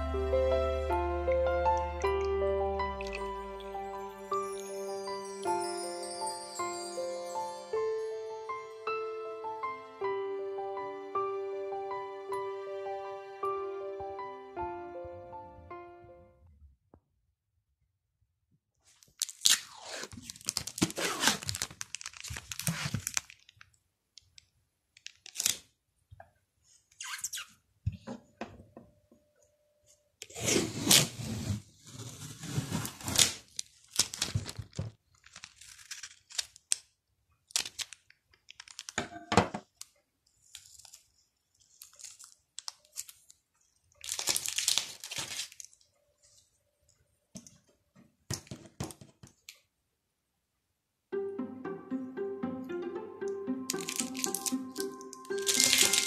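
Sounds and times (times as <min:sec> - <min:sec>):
paper crinkling and tearing: 0:18.9 - 0:23.7, 0:25.0 - 0:25.7, 0:30.3 - 0:36.9, 0:37.5 - 0:39.0, 0:40.4 - 0:43.4, 0:44.0 - 0:45.8, 0:53.7 - 0:56.0.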